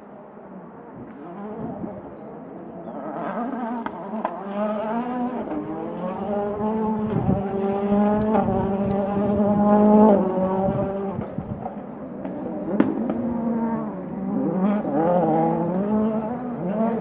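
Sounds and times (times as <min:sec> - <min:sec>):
rally car engine accelerating: 0:00.9 - 0:17.0.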